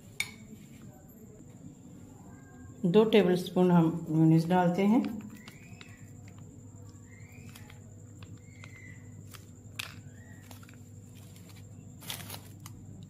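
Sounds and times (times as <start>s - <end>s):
bird chirps: 5.2s - 9.2s.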